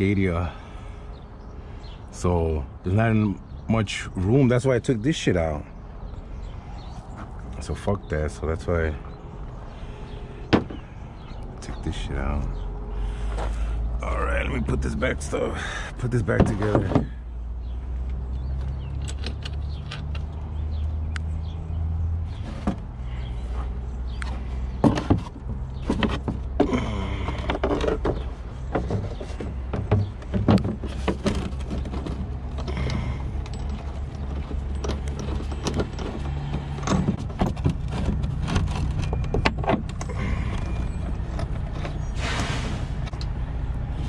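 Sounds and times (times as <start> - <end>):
low engine hum: 0.0 - 44.0
clicks knocks and rattles of trim: 27.3 - 42.0.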